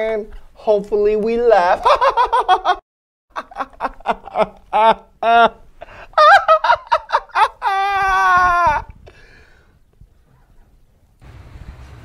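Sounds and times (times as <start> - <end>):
man mock screaming: 6.2 - 8.9.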